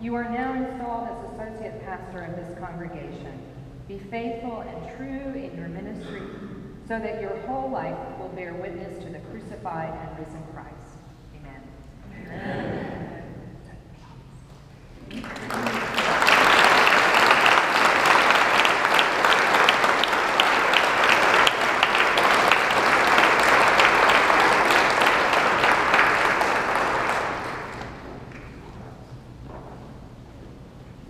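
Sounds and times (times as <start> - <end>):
congregation applauding: 15.0 - 28.8.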